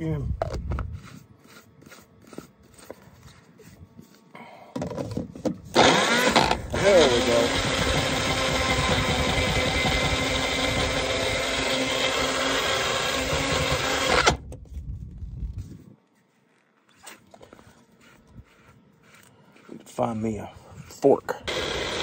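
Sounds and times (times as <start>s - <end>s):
blender grinding: 5.8s - 14.4s, 21.5s - 22.0s.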